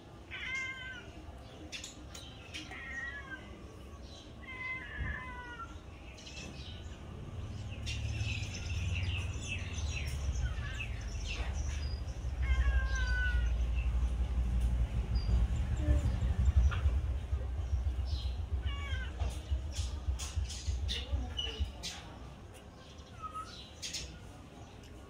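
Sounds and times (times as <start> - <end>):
cat meowing: 0.3 - 1.2, 2.6 - 3.7, 4.4 - 5.8, 12.2 - 13.9, 18.2 - 19.6
low rumble: 13.4 - 22.5.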